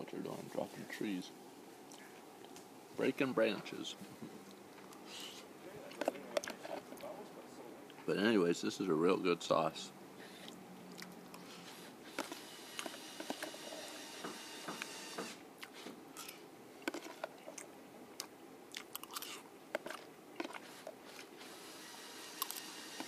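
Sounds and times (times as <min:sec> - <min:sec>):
man chewing: 0:04.4 - 0:07.1, 0:10.2 - 0:13.8, 0:15.6 - 0:21.6, 0:22.2 - 0:23.0
wet mouth clicks and smacks: 0:10.4 - 0:11.5.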